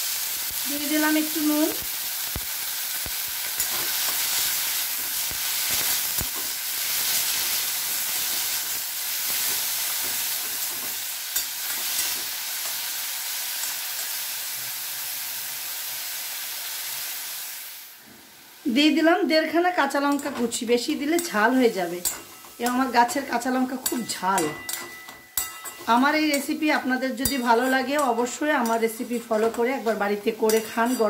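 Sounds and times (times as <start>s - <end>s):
greens sizzling in hot oil: 0.0s - 31.0s
spatula scraping a pan: 20.1s - 26.5s, 27.1s - 31.0s.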